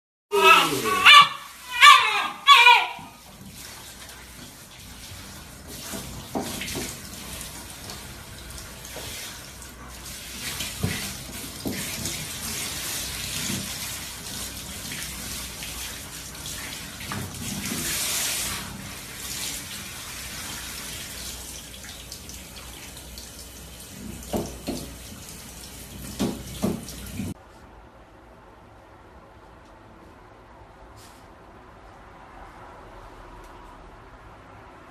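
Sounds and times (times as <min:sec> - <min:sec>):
shower water spraying: 0:00.4 - 0:27.4.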